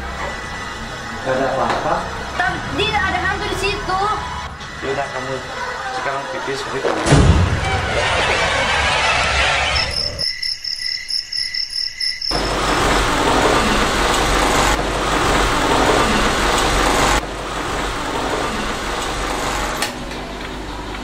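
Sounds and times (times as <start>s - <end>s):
crickets chirping: 9.6s - 13.2s.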